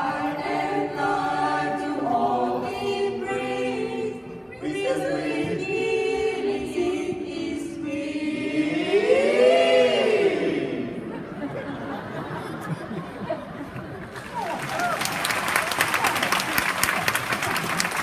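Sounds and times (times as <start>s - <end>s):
choir singing held chords: 0.0s - 12.4s.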